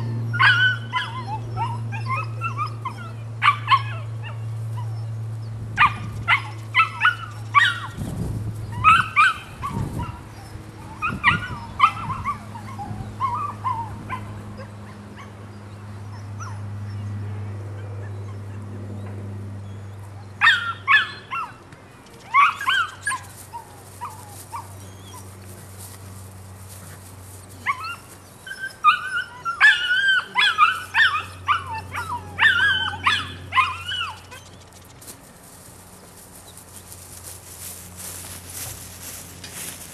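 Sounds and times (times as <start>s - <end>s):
puppy yelping and whining: 0.0s - 8.0s, 8.7s - 15.3s, 20.2s - 21.6s, 22.3s - 25.3s, 27.6s - 34.7s.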